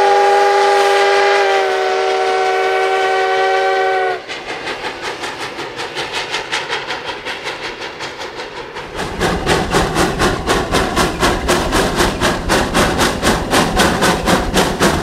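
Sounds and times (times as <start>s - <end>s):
steam locomotive whistle blast: 0.0s - 4.3s
locomotive exhaust chuffing: 3.9s - 15.0s.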